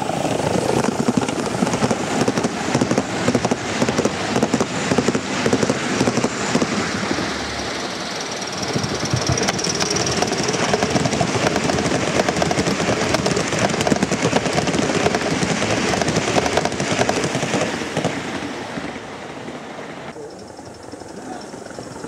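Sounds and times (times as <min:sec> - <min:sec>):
model train wheels clattering: 0:00.6 - 0:06.9, 0:07.7 - 0:18.2.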